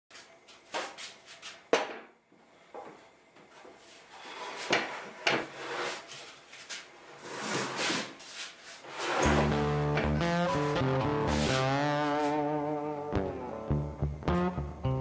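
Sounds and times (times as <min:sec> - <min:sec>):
board scraping against saw: 0:04.2 - 0:06.1, 0:07.2 - 0:08.2, 0:08.8 - 0:09.7.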